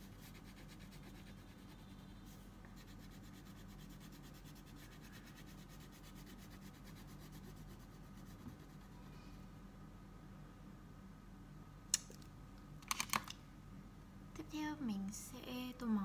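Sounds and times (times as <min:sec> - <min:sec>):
crayon rubbing on paper: 0:00.0 - 0:09.0
steady low hum: 0:00.0 - 0:16.0.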